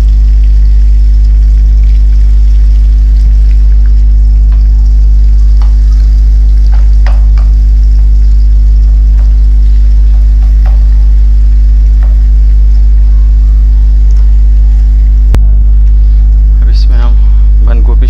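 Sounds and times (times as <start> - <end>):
onions sizzling in hot oil: 0.0 - 14.1
low hum: 0.0 - 18.0.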